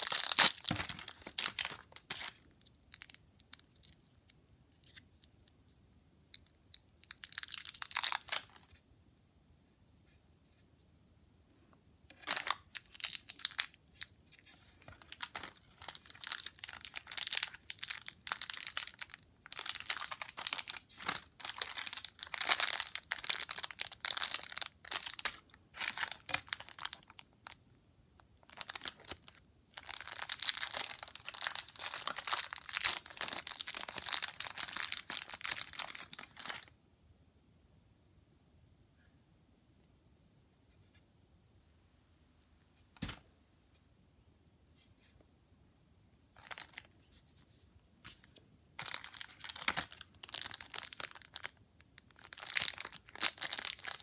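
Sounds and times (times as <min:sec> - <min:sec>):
plastic wrappers crinkling: 0:00.0 - 0:04.0, 0:07.0 - 0:08.7, 0:12.1 - 0:27.6, 0:28.4 - 0:36.7, 0:46.3 - 0:47.0, 0:48.8 - 0:54.0.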